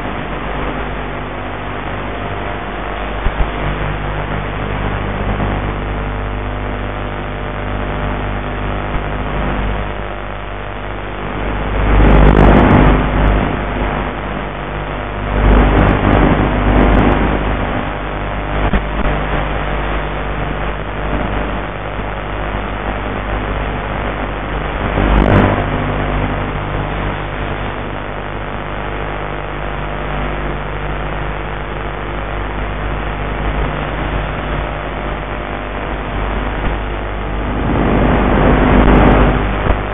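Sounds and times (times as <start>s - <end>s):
rushing wind noise: 36.6s - 39.9s.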